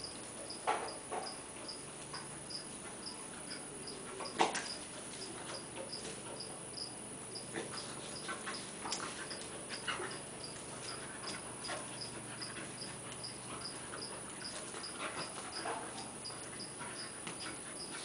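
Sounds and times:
dogs play-wrestling: 0:00.0 - 0:18.0
insect chirping: 0:00.0 - 0:18.0
dog vocalizations: 0:07.4 - 0:18.0.

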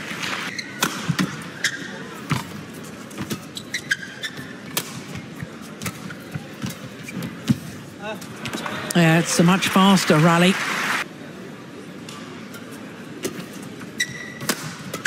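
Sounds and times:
shoes squeaking on court floor: 0:00.5 - 0:07.9, 0:13.2 - 0:15.0
rackets hitting shuttlecock: 0:00.8 - 0:01.4, 0:14.4 - 0:15.0.

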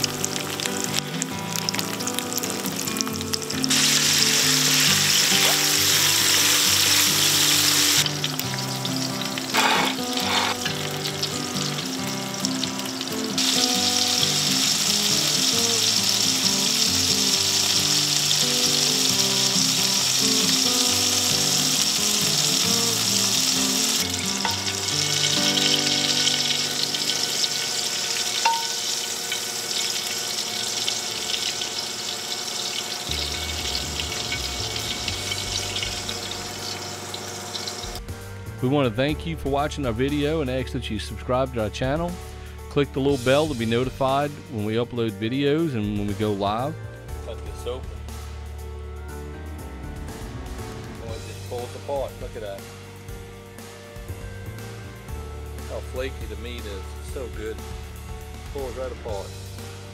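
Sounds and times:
food sizzling in frying pan: 0:00.0 - 0:38.1
light background music: 0:00.0 - 0:59.9.

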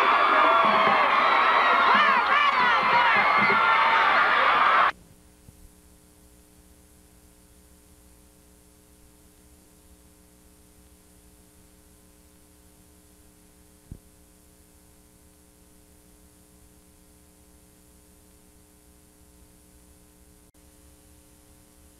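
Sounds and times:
faint electrical hum and hiss: 0:05.0 - 0:21.9.

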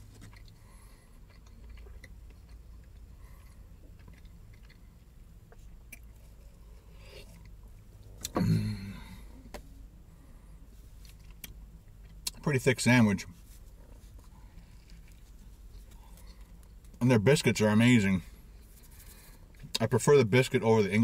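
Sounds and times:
quiet chewing: 0:00.0 - 0:08.4, 0:13.5 - 0:17.0
low steady car cabin hum: 0:00.0 - 0:21.0.

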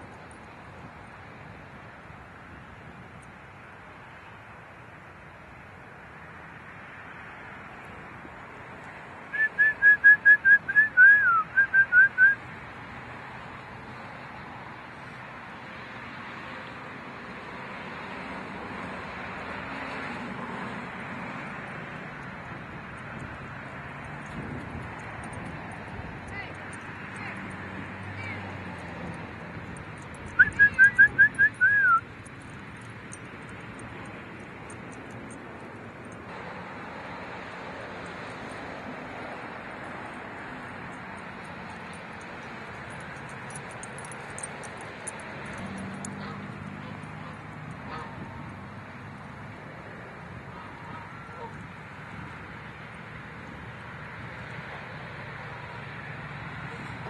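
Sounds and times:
person whistling short notes: 0:09.4 - 0:12.4, 0:30.4 - 0:32.0.

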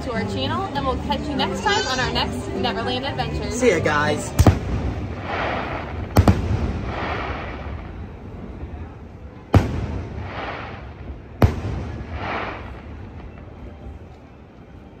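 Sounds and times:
firework crackle: 0:04.0 - 0:14.5
firework booms: 0:04.3 - 0:08.9, 0:09.5 - 0:13.5.

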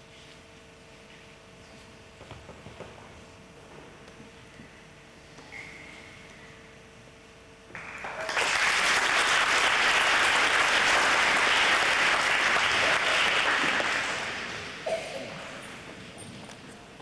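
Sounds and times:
audience applauding: 0:07.7 - 0:14.9.

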